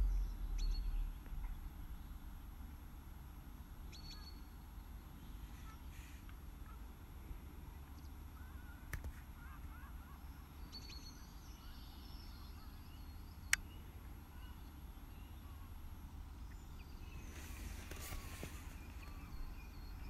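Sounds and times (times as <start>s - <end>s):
distant bird calls: 0.0s - 20.0s
low steady rumble: 0.0s - 20.0s.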